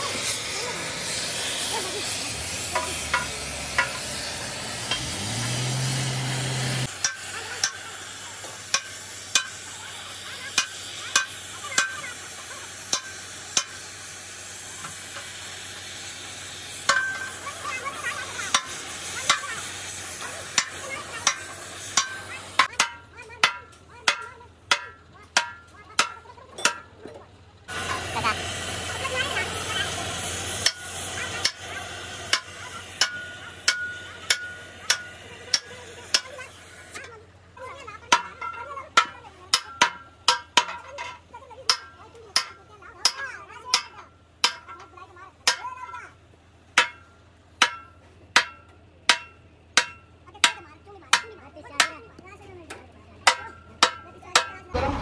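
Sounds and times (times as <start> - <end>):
cutting torch flame hissing: 0.0 - 22.6, 27.7 - 37.0.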